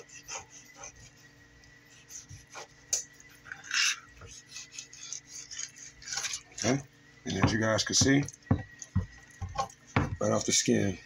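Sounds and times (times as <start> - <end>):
knife scraping fish skin: 0.0 - 1.2, 1.9 - 6.7.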